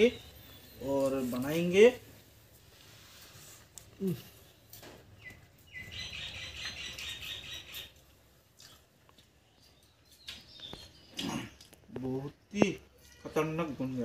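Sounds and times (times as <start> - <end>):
bird chirping in a fast run: 5.2 - 8.0, 9.5 - 11.2.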